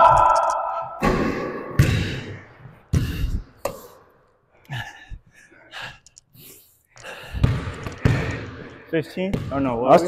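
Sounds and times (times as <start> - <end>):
basketball bouncing on court: 7.4 - 8.6, 9.2 - 10.0.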